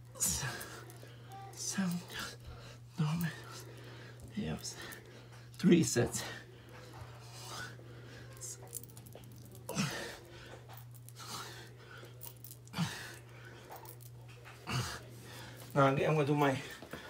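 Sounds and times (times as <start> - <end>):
steady low hum: 0.0 - 17.0
man grunting exhalations: 9.7 - 10.2.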